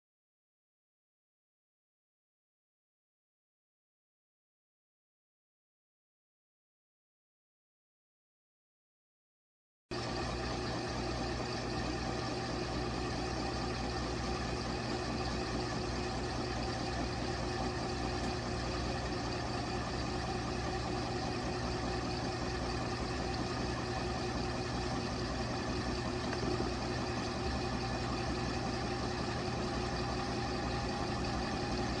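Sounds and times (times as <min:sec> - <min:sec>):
washing machine motor hum: 0:09.9 - 0:32.0.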